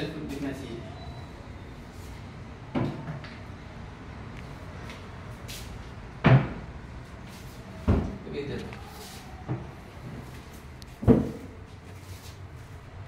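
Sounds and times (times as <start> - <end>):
cabinet door knocking shut: 11.0 - 11.4.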